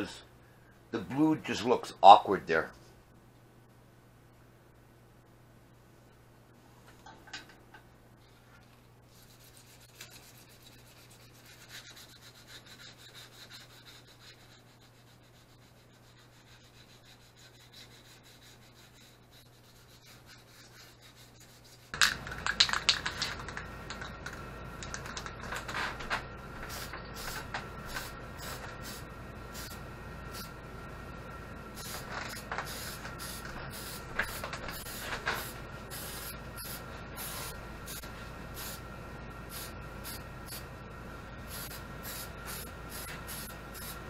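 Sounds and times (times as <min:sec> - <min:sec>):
sandpaper rubbing: 0:09.1 - 0:22.0
aerosol spray can hissing: 0:26.7 - 0:30.5, 0:31.8 - 0:38.0, 0:38.6 - 0:38.8, 0:39.5 - 0:40.6, 0:41.5 - 0:44.0.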